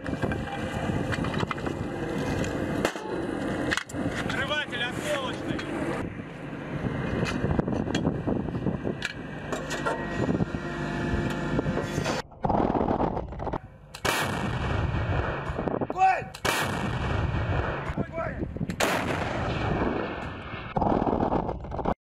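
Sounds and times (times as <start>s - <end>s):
long rumble: 0.0s - 22.0s
heavy cannon blasts: 12.4s - 21.9s.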